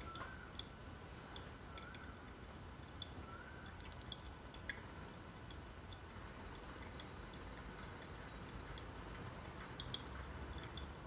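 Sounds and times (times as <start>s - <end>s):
coffee dripping: 0.0s - 11.0s
low steady hum: 0.0s - 11.0s.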